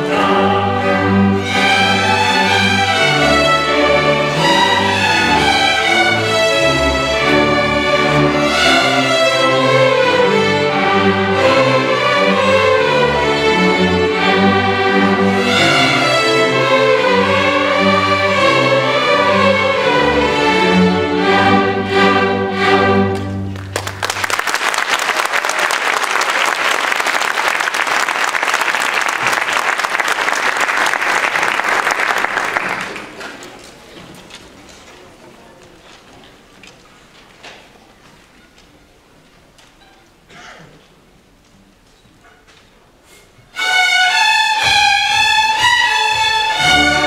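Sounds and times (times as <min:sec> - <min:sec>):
fiddles and cellos playing folk tune: 0:00.0 - 0:23.7, 0:43.5 - 0:47.0
audience applause: 0:23.5 - 0:33.9.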